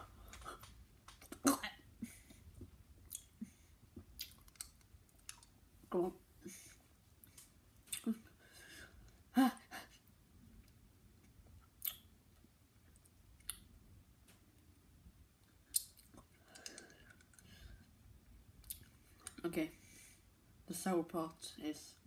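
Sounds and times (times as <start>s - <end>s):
lip and tongue clicks: 4.1s - 5.5s, 11.8s - 12.1s, 15.7s - 17.5s.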